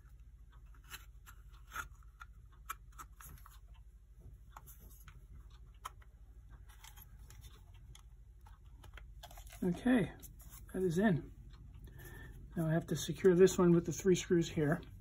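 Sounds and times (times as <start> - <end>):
light clicks and scrapes: 4.5 - 11.1.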